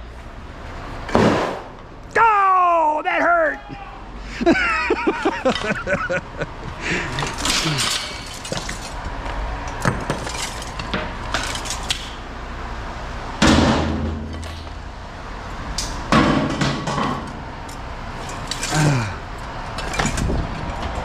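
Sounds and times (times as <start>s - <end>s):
metal crashes: 6.9s - 9.0s, 9.7s - 12.2s, 13.4s - 14.8s, 16.1s - 17.4s, 18.2s - 21.0s
scrap metal clanking into bin: 7.2s - 9.0s, 9.8s - 12.1s, 18.2s - 19.1s.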